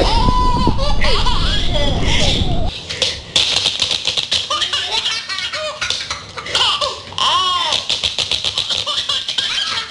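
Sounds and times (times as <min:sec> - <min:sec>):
baby laughing: 0:00.0 - 0:02.7, 0:04.2 - 0:07.9, 0:08.5 - 0:09.9.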